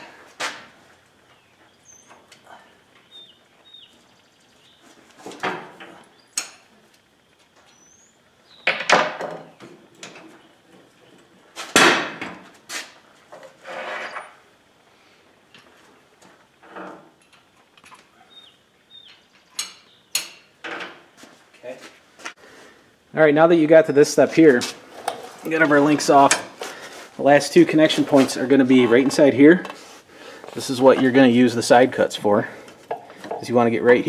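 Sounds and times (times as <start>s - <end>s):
metal links clanking and scraping: 13.3s - 14.4s, 24.8s - 26.6s.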